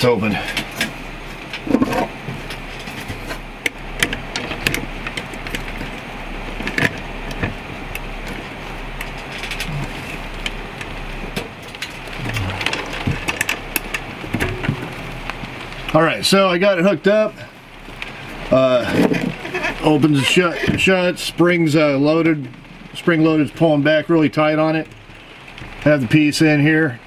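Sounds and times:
light rain hiss: 0:00.0 - 0:27.0.

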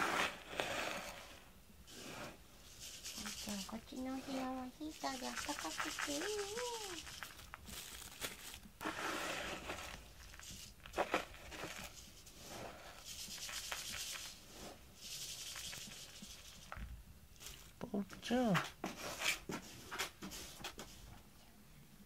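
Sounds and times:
hand stroking cat fur: 0:01.9 - 0:07.5.

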